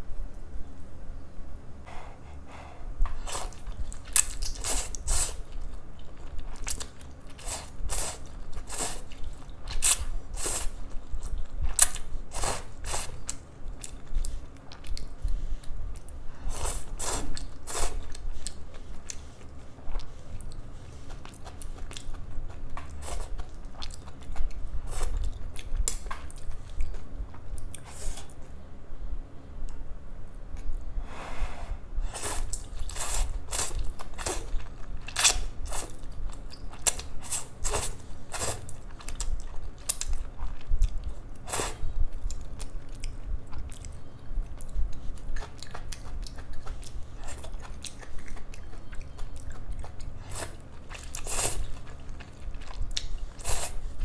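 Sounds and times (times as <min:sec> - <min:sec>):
person chewing noodles: 0:03.1 - 0:28.4, 0:32.1 - 0:54.0.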